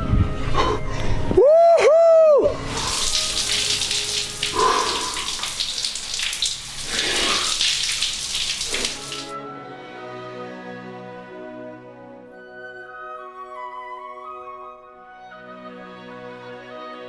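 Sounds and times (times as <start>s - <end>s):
soft music: 0.0s - 17.0s
shower spraying water: 2.6s - 9.3s.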